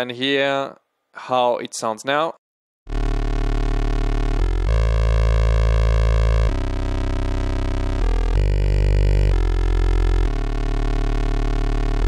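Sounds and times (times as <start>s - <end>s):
buzzy sawtooth synthesizer notes: 2.9s - 12.0s.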